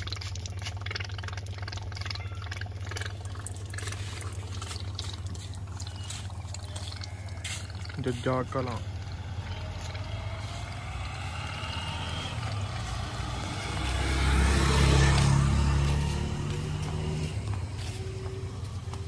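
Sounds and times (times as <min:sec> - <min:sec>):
motorcycle passing by: 0:04.0 - 0:19.0.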